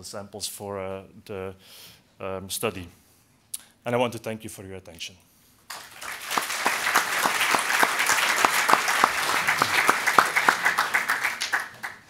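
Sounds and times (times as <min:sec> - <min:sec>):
audience applauding: 0:05.7 - 0:12.0.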